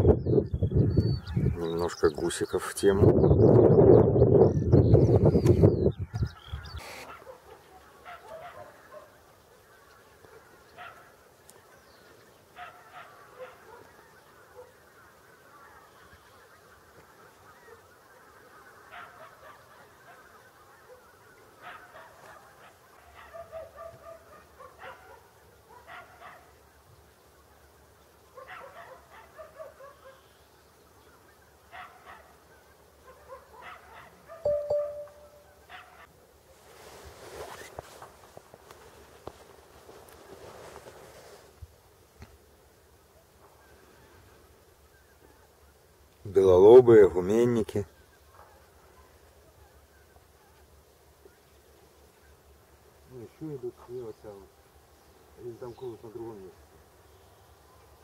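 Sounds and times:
geese honking: 12.7s - 23.7s
short steady tone: 34.5s - 35.6s.

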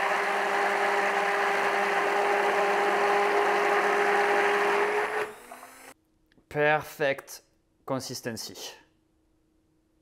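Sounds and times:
immersion blender motor running: 0.0s - 6.0s.

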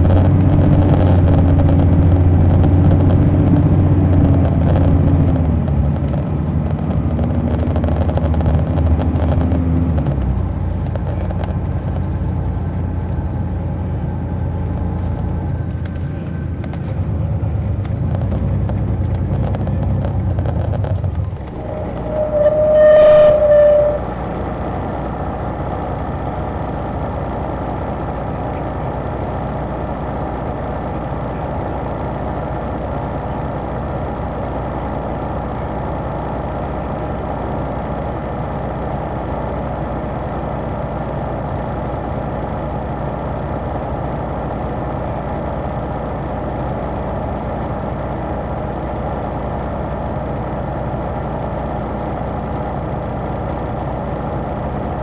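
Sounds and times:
bus diesel engine: 0.0s - 55.0s
vehicle horn: 21.6s - 24.3s.

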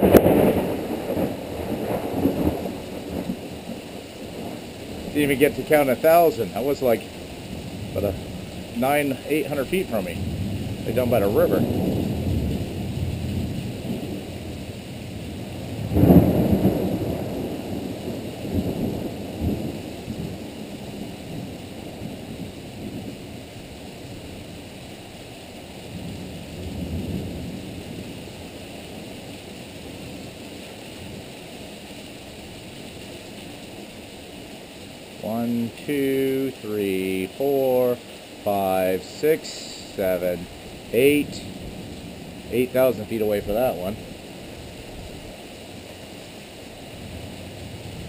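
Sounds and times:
thunder rolling: 0.0s - 3.7s, 4.3s - 23.2s
heavy rain: 0.0s - 48.0s.

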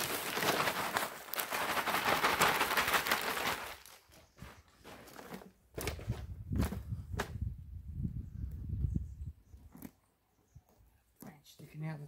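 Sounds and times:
soil pouring from plastic bag: 0.0s - 5.5s
hand scraping soil: 0.0s - 7.2s.

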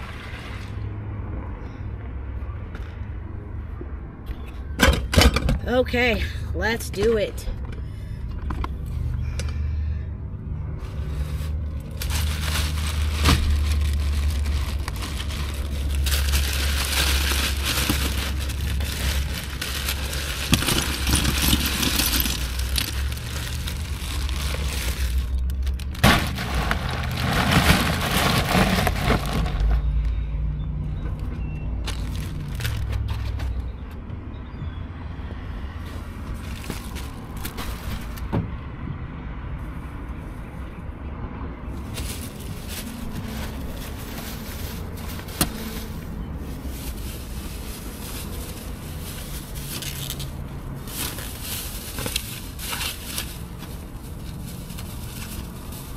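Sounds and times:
plastic bags crinkling: 11.4s - 29.8s, 31.9s - 33.2s, 36.3s - 38.2s, 41.8s - 55.9s.

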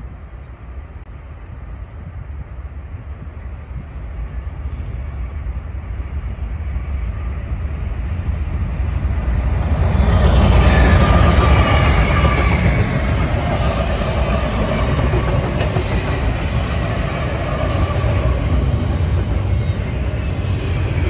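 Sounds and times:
locomotive engine rumble: 8.6s - 21.0s
wheel-on-rail noise: 8.9s - 21.0s.

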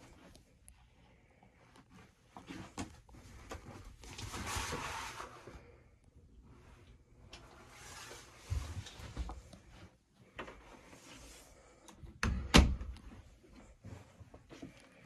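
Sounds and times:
soft rustle: 0.0s - 11.8s, 13.1s - 15.0s
knocks and thumps in small room: 11.8s - 15.0s.

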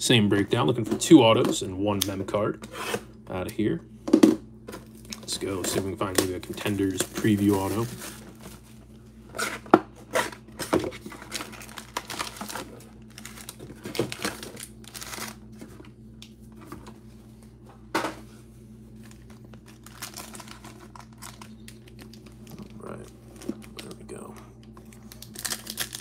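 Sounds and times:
foil card packs crinkling: 4.7s - 16.0s, 18.9s - 26.0s.

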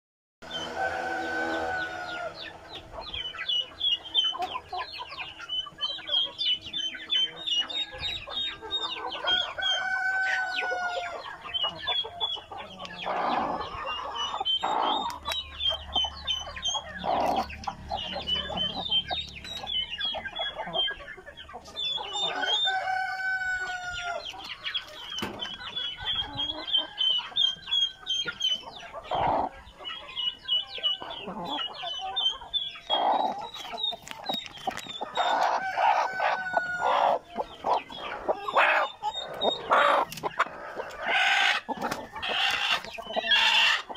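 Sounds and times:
chickens clucking and squawking: 0.4s - 43.9s
rapid high-pitched chirping: 25.4s - 35.6s, 37.0s - 43.9s.

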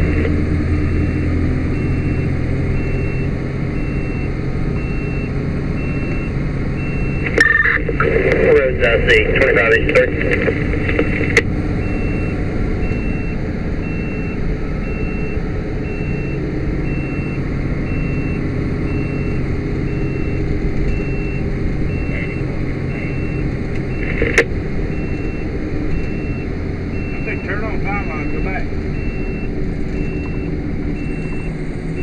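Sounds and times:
engine and road noise: 0.0s - 32.0s
short high electronic beeps: 7.4s - 8.0s.

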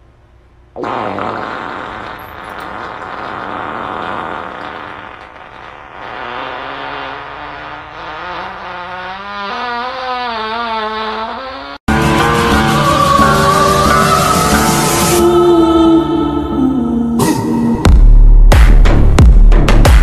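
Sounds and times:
long fart: 0.8s - 13.0s.

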